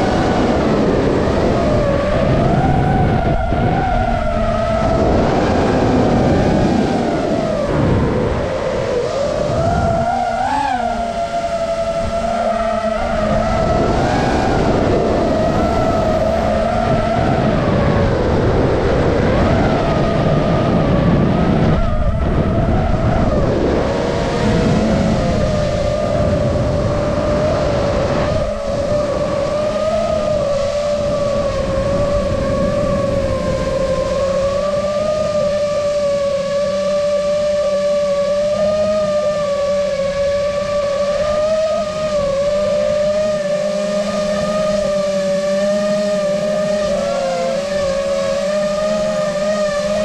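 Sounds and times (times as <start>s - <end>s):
rush of air noise: 0.0s - 36.9s
quadcopter motors whining: 0.0s - 50.0s.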